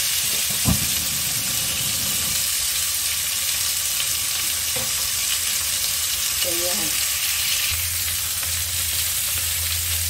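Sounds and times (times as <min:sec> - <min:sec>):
ribs sizzling in a frying pan: 0:00.0 - 0:10.0
knock: 0:00.5 - 0:01.2.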